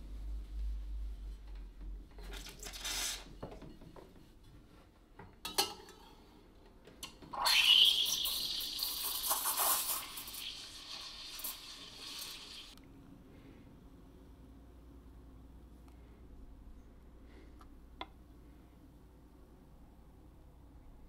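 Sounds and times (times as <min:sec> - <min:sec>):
steam wand hissing in milk: 0:07.4 - 0:12.8.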